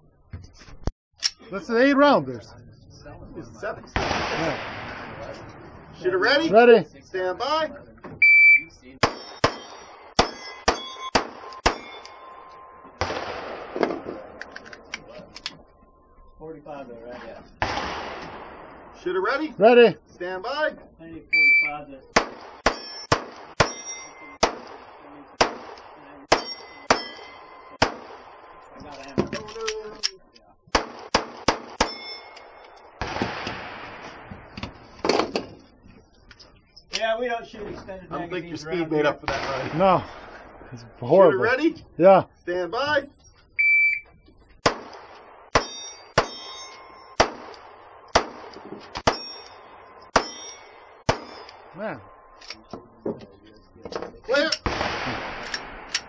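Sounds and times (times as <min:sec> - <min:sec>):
burst of noise: 0:04.0 - 0:06.0, 0:54.7 - 0:55.9
pistol shots: 0:09.0 - 0:12.2, 0:13.0 - 0:14.6, 0:17.6 - 0:18.9, 0:22.1 - 0:28.6, 0:30.7 - 0:34.3, 0:44.6 - 0:51.7, 0:54.6 - 0:56.0
steel target plate ringing: 0:09.1 - 0:13.0, 0:22.6 - 0:24.4, 0:26.3 - 0:27.8, 0:31.7 - 0:33.0, 0:45.6 - 0:47.2, 0:49.0 - 0:51.7.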